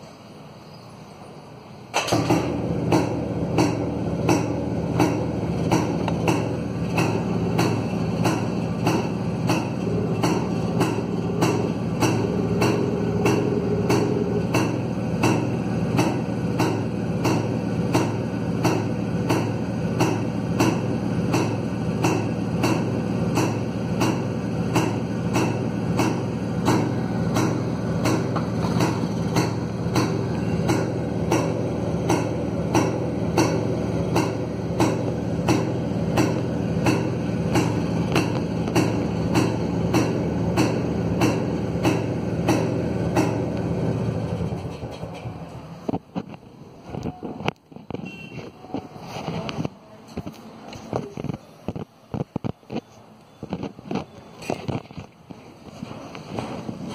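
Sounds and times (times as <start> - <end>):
motorcycle engine idling: 2.1 - 45.1.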